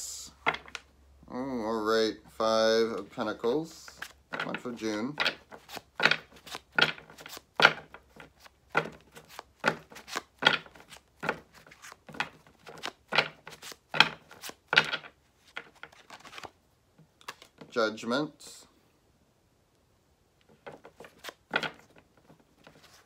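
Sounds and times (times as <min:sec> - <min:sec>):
cards being shuffled: 0:02.8 - 0:17.8, 0:20.4 - 0:23.0.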